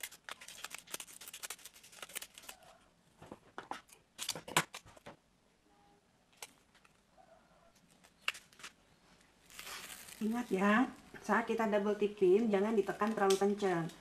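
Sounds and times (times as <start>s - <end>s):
tape and paper backing crinkling: 0.0s - 5.1s, 7.7s - 11.0s.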